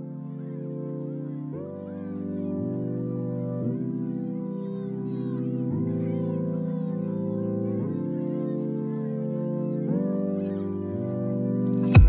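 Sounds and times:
held keyboard chords: 0.0 - 12.0.

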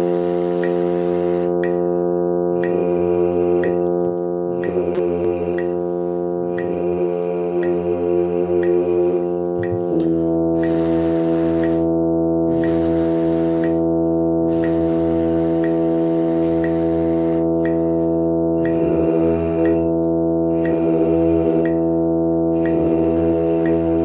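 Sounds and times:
brass mouthpiece buzzing: 0.0 - 24.0
sustained accompaniment tones: 0.0 - 24.0
metronome clicking: 0.6 - 0.8, 1.6 - 1.8, 2.6 - 2.8, 3.6 - 5.8, 7.6 - 7.9, 8.6 - 8.9, 9.6 - 13.0, 13.6 - 17.8, 18.6 - 22.0, 22.6 - 24.0.

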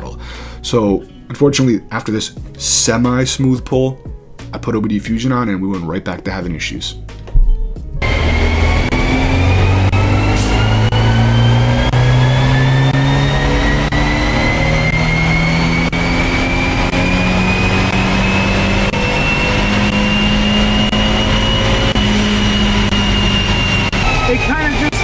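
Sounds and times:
high whine: 7.3 - 25.0
car engine revving at full throttle: 7.9 - 25.0.

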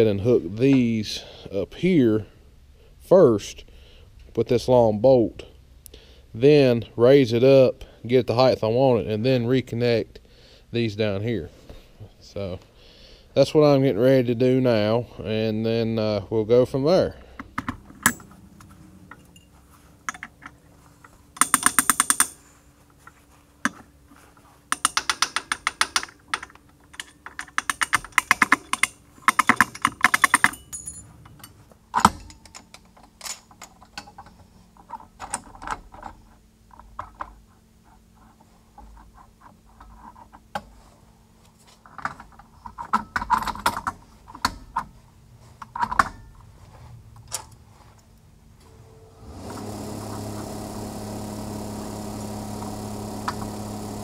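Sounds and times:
faint steady hum: 0.0 - 54.0
ratchet wrench clicking: 21.4 - 22.4, 24.7 - 30.6.

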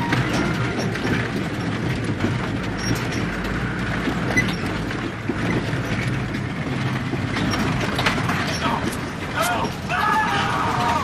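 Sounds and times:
light rattles: 0.0 - 11.0
vehicle engine and road noise: 0.0 - 11.0.

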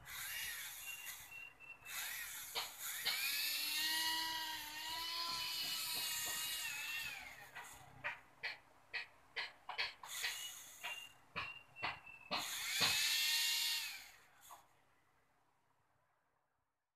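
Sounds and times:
small motor whirring: 0.0 - 7.8, 12.3 - 14.6.

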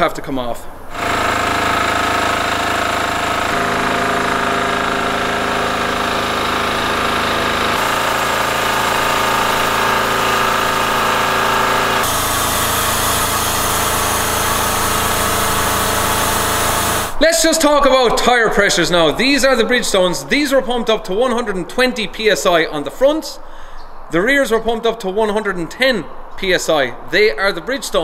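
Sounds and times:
machinery engine drone: 0.9 - 17.2.

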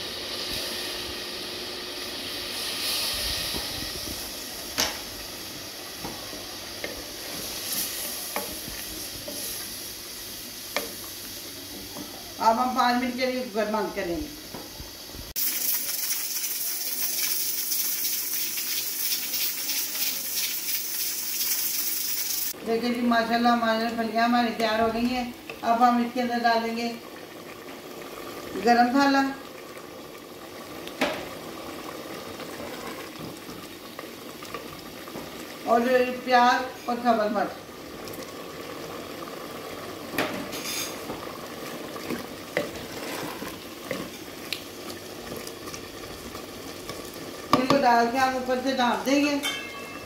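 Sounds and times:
pressure cooker hissing: 0.0 - 22.6
food sizzling in a pot: 0.0 - 50.0.

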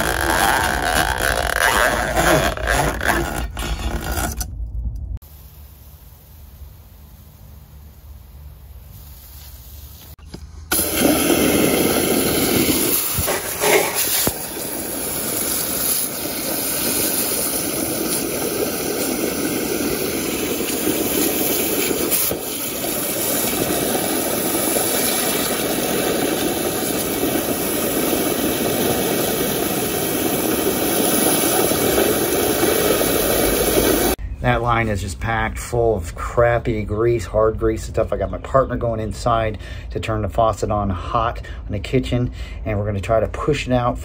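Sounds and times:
hose nozzle spraying water into pipe: 9.0 - 34.2.

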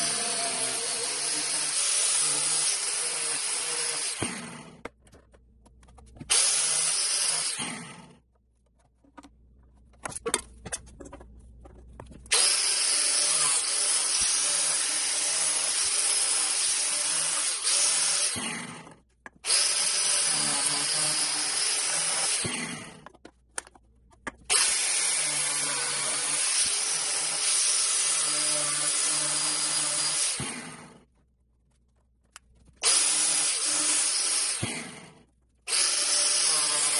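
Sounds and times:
angle grinder cutting plastic pipe: 0.0 - 5.0, 5.8 - 8.4, 12.2 - 31.1, 32.8 - 36.9.

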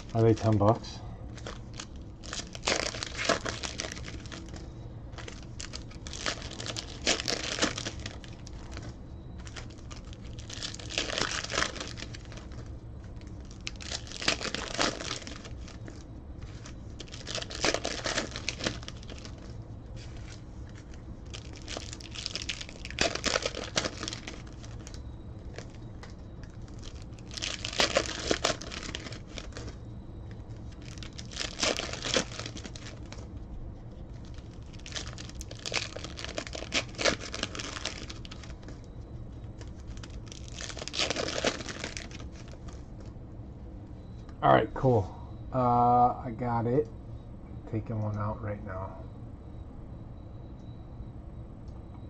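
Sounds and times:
foil wrappers tearing and crinkling: 0.0 - 0.6, 1.3 - 29.8, 30.5 - 33.3, 34.1 - 38.9, 39.5 - 42.8.

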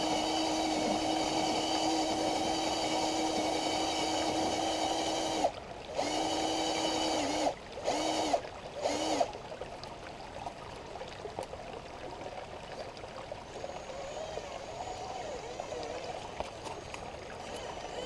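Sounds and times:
electric motor and gears whining: 0.0 - 9.3, 13.5 - 18.0
stream trickling: 0.0 - 18.0.

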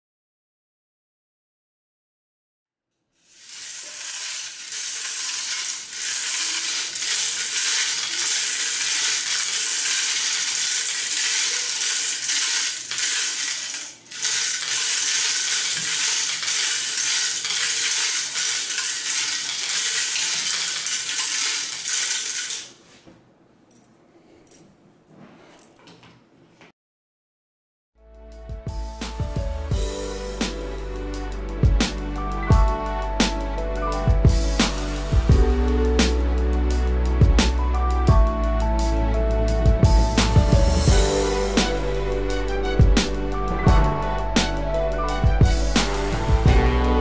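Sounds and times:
plastic pieces clattering into bowl: 3.3 - 22.7
plastic pieces rattling in drum: 3.3 - 22.7.

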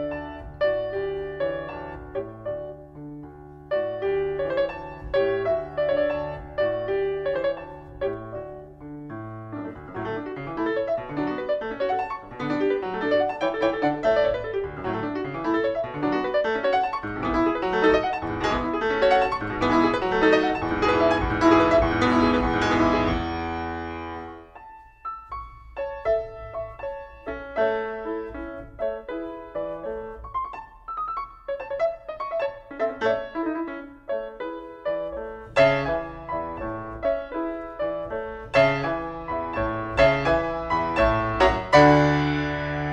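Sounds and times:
piano music: 0.0 - 42.9.

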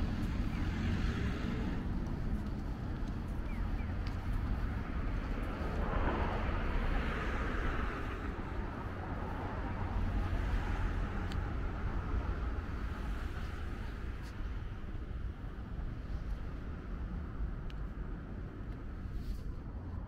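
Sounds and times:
vehicle passing: 0.0 - 14.2
traffic rumble: 0.0 - 20.0.

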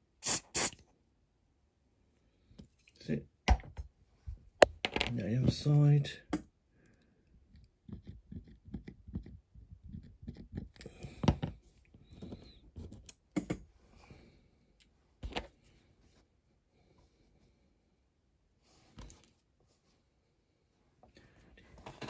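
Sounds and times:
fingers tapping and rubbing toy: 7.6 - 10.8.

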